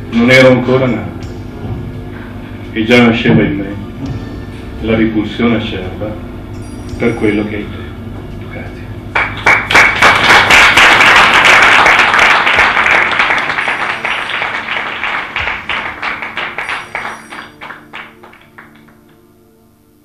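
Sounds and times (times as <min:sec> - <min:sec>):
audience applause: 0:09.1 - 0:19.2.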